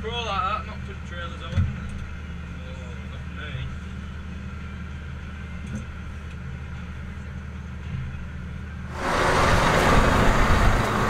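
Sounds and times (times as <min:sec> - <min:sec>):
loud rushing noise: 0:08.9 - 0:11.0
tractor engine humming: 0:08.9 - 0:11.0.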